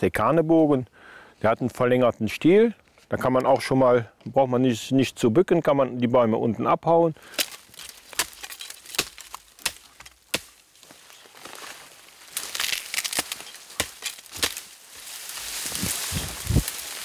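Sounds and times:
billhook chopping branches: 0:07.2 - 0:14.8
leaves and twigs rustling: 0:07.2 - 0:17.0.

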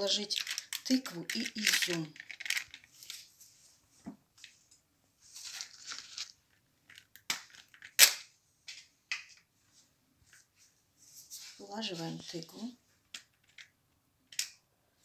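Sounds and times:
baking paper crinkling: 0:00.0 - 0:03.8, 0:04.4 - 0:08.0.

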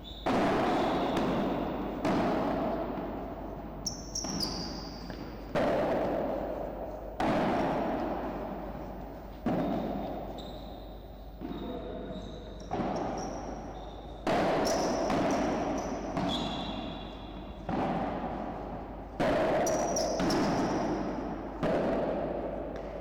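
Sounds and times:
shoe squeak: 0:00.0 - 0:01.8, 0:03.8 - 0:05.5, 0:09.6 - 0:17.6, 0:19.6 - 0:20.8
ball hit by rackets: 0:00.1 - 0:10.8, 0:11.4 - 0:23.0.

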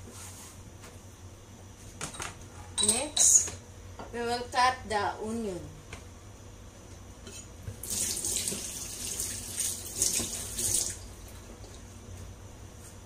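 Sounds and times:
kitchen tap running into sink: 0:07.8 - 0:11.2.

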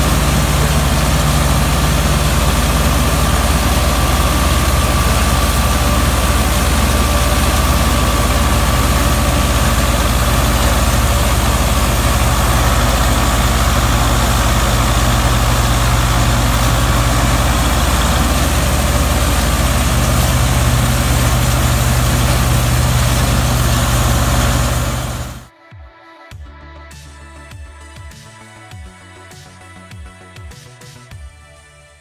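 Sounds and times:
straw chopper rushing: 0:00.0 - 0:25.5
tractor diesel engine droning: 0:00.0 - 0:25.5.

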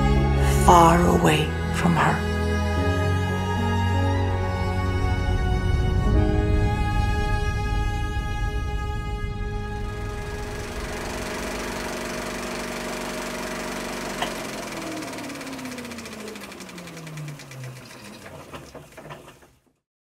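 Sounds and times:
held music tones: 0:00.4 - 0:19.4
tone sliding down in pitch: 0:01.6 - 0:16.4
film projector clatter: 0:10.0 - 0:19.8.

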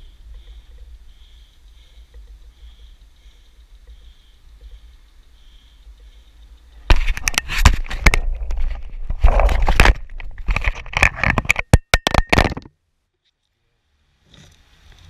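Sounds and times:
camera housing knocks and scrapes: 0:06.9 - 0:12.7.

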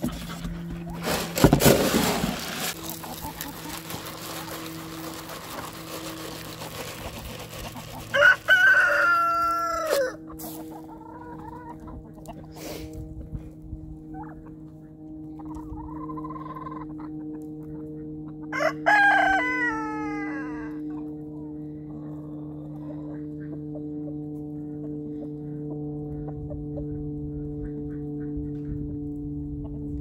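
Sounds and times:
hen clucking: 0:02.7 - 0:12.7, 0:14.1 - 0:18.6, 0:21.9 - 0:28.9
rooster crowing: 0:08.0 - 0:10.3, 0:18.5 - 0:20.9.

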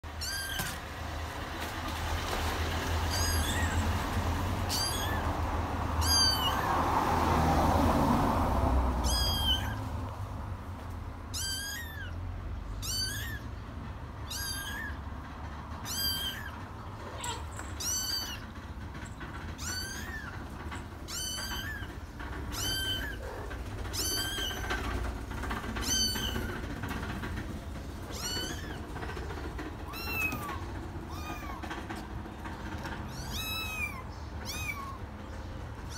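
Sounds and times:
kittens mewing: 0:00.1 - 0:00.8, 0:03.0 - 0:06.8, 0:09.0 - 0:09.9, 0:11.3 - 0:12.2, 0:12.8 - 0:13.6, 0:14.3 - 0:15.1, 0:15.8 - 0:18.6, 0:19.5 - 0:27.2, 0:28.0 - 0:32.0, 0:33.0 - 0:35.2.

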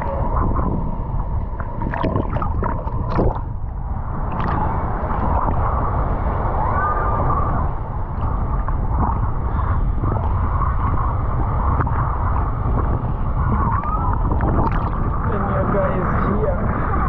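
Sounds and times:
seawater sloshing and gurgling: 0:00.0 - 0:17.0
steady low rumble: 0:00.0 - 0:17.0
small water splashes: 0:01.5 - 0:06.2, 0:12.7 - 0:16.2.

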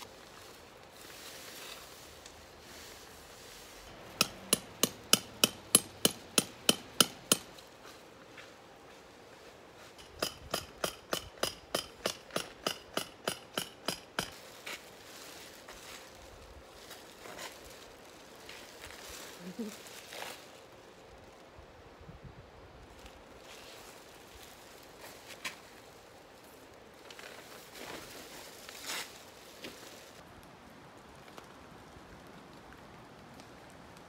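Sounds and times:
hammer driving metal tent pegs: 0:04.0 - 0:07.6, 0:09.9 - 0:14.3.

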